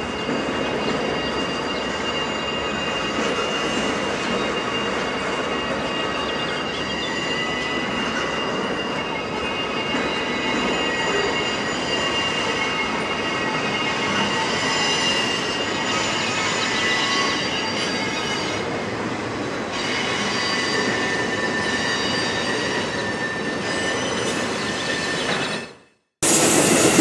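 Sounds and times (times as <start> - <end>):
wheels squealing: 19.7 - 25.8
freight train rolling rumble: 26.2 - 27.0.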